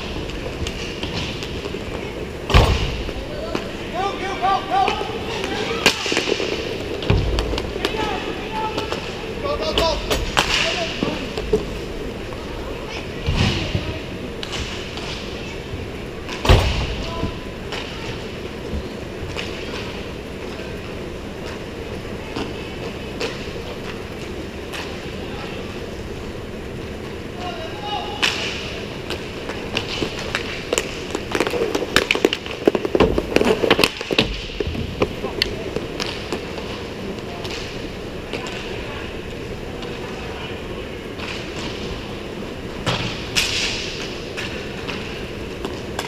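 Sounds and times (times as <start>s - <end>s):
hockey sticks and puck clattering: 0.0s - 20.8s, 22.3s - 25.3s, 28.1s - 39.0s, 41.0s - 42.2s, 42.8s - 46.0s
inline skate wheels rolling: 0.0s - 46.0s
steady background hum: 0.0s - 46.0s
clicks of sticks and puck: 19.3s - 20.0s, 28.2s - 38.8s, 41.2s - 41.9s, 42.8s - 46.0s.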